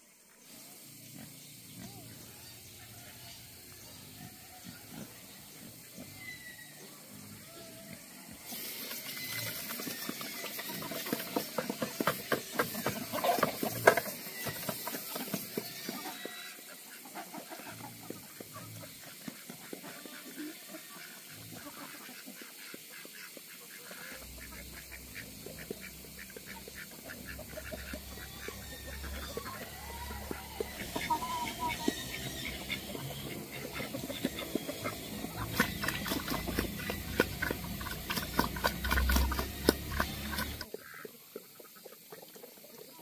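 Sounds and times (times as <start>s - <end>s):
pig chomping and slurping: 30.3s - 40.8s.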